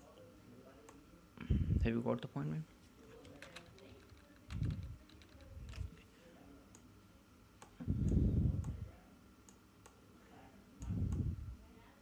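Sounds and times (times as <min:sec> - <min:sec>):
low muffled rumble: 0:04.5 - 0:06.0, 0:07.8 - 0:09.0, 0:10.8 - 0:11.6.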